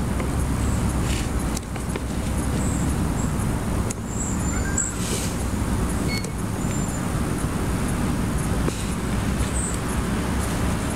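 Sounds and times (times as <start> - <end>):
low rumbling background noise: 0.0 - 10.9
high chirps: 4.1 - 5.1.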